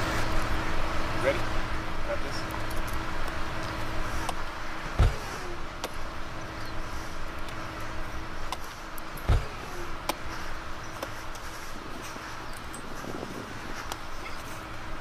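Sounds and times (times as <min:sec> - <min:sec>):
low rumble with hum: 0:00.0 - 0:15.0
dull thumps: 0:04.9 - 0:06.0, 0:09.2 - 0:10.2.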